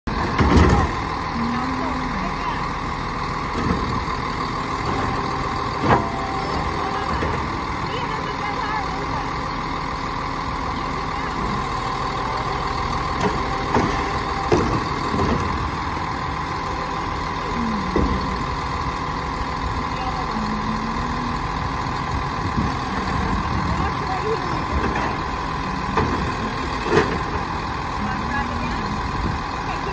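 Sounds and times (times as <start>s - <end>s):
garbage truck engine running: 0.0s - 29.9s
hydraulic whine: 11.0s - 29.7s.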